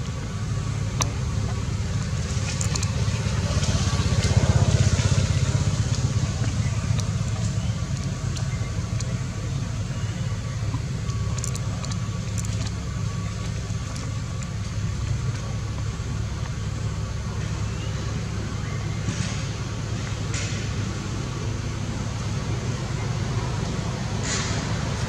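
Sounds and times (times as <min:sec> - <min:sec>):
low motor rumble: 0:00.0 - 0:25.0
faint clicks: 0:10.2 - 0:16.6.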